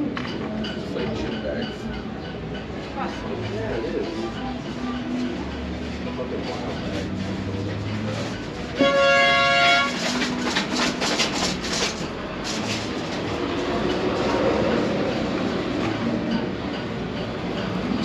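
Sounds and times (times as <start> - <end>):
crowd hubbub: 0.0 - 18.0
loud horn blast: 8.7 - 10.3.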